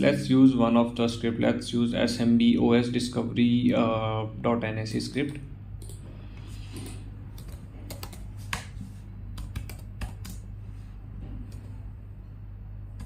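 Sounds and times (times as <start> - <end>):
steady low hum: 0.0 - 13.0
typing on keyboard: 6.8 - 8.8, 9.4 - 10.4.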